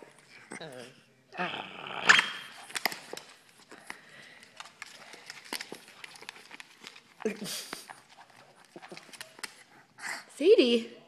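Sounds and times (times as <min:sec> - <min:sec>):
dog claws scrabbling on wood floor: 0:02.5 - 0:09.7.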